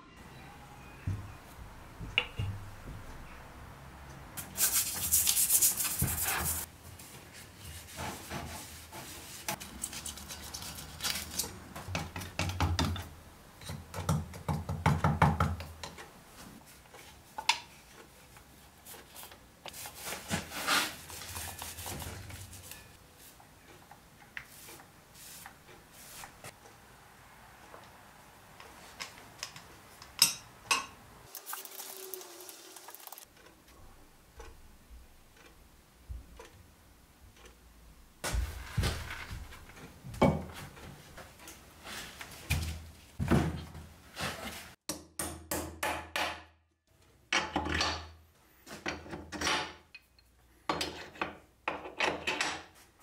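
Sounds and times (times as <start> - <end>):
brush on steel: 4.4 - 11.5, 18.8 - 23.4.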